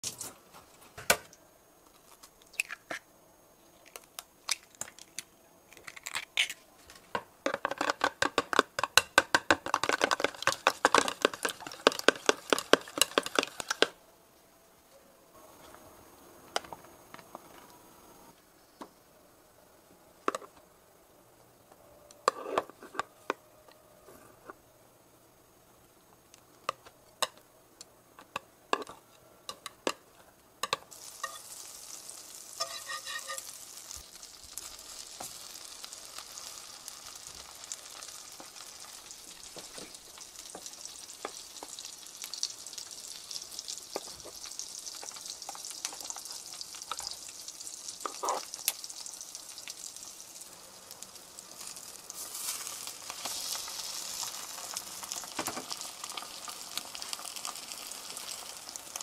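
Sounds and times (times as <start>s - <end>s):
chopsticks tapping: 7.5s - 13.9s
eggs tapping in plastic container: 7.5s - 13.9s
fast clicking of beating eggs: 7.5s - 13.9s
knife and foil rustling: 32.6s - 33.5s, 52.2s - 53.6s.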